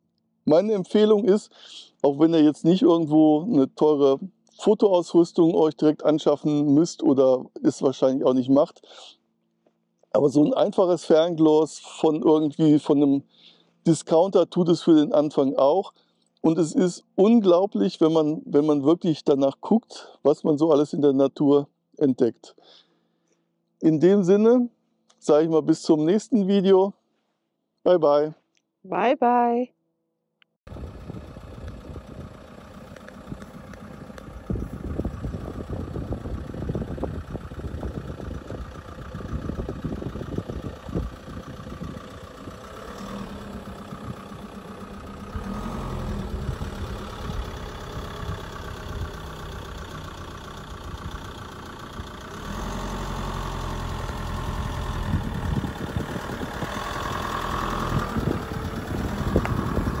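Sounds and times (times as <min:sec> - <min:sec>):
engine running: 0:10.2 - 0:15.9, 0:30.7 - 1:00.0.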